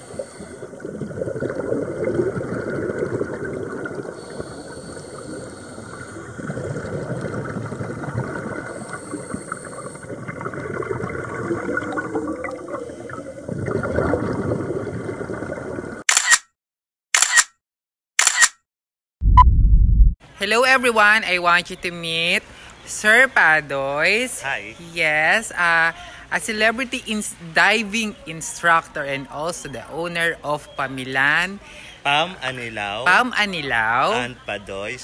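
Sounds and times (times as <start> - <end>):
rush of exhaled bubbles: 0.0 - 16.0
camera shutter clicks: 16.1 - 16.5, 17.2 - 17.6, 18.2 - 18.6.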